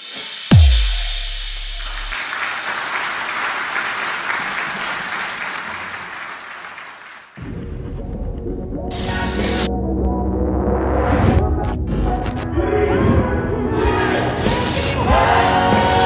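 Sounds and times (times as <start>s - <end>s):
deep bass boom: 0.5s - 2.1s
crowd applauding: 1.8s - 7.4s.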